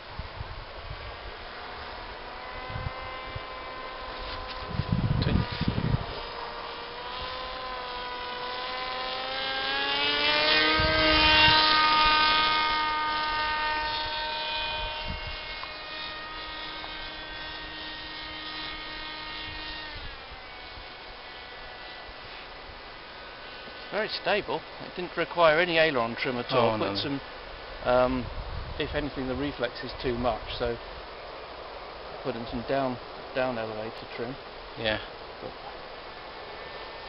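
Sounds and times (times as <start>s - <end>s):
wind gusts on microphone: 0.0s - 7.6s, 10.4s - 15.6s, 26.5s - 33.4s
model aircraft propeller buzzing: 0.0s - 37.0s.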